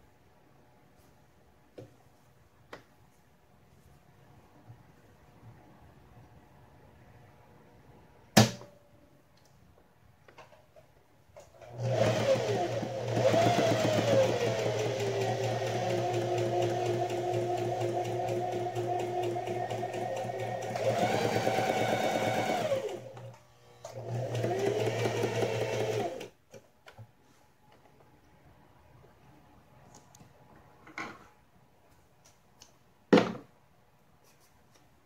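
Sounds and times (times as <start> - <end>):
sewing machine stitching: 11.6 - 26.4.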